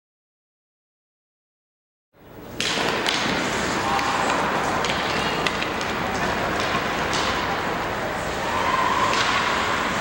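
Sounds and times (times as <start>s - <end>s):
hockey sticks clattering: 2.5s - 10.0s.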